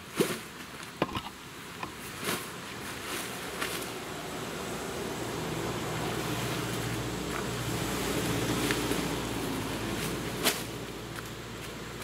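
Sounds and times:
vehicle engine hum: 1.0 - 12.0
tent fabric rustling: 2.0 - 4.1.

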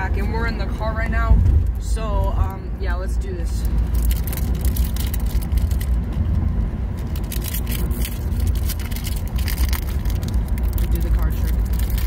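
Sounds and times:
low rumble in car: 0.0 - 12.0
foil wrapper crinkling: 3.8 - 6.2, 7.0 - 12.0.

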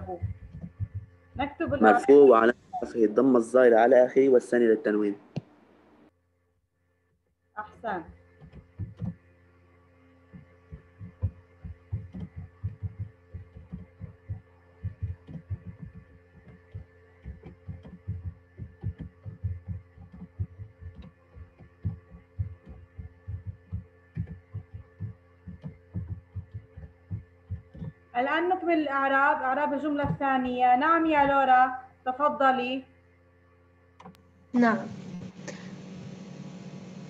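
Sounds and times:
steady electrical hum: 0.0 - 37.0
keyboard typing thuds: 0.2 - 1.8, 8.4 - 9.2, 10.3 - 28.0.

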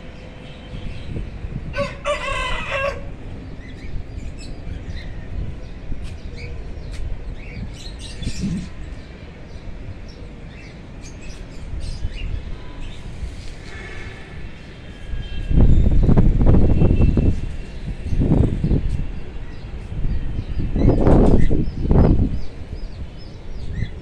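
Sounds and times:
rooster crowing: 1.8 - 3.1.

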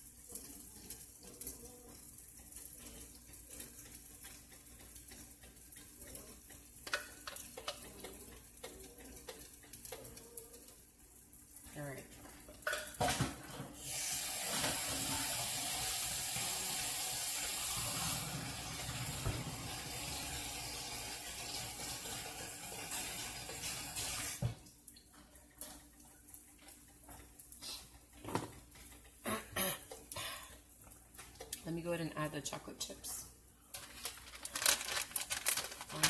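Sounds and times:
water running from a tap: 0.0 - 32.6.

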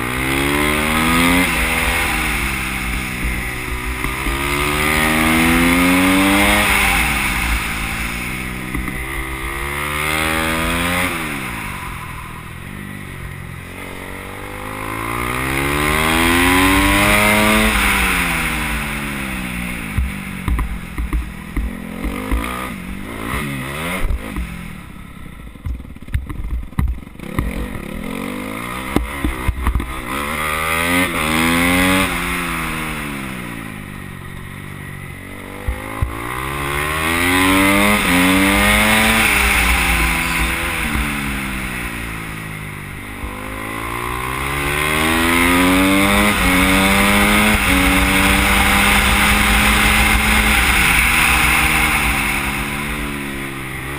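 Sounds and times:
dirt bike engine revving: 0.0 - 26.0, 26.9 - 53.9
sharp knocks and clatter: 25.6 - 27.6.

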